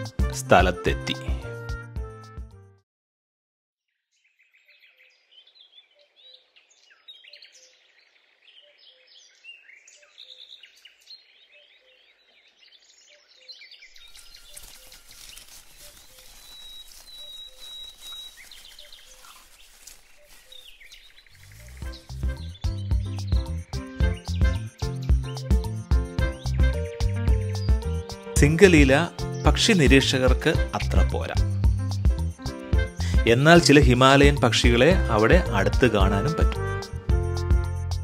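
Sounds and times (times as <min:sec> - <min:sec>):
small birds chirping: 0:03.9 - 0:31.4.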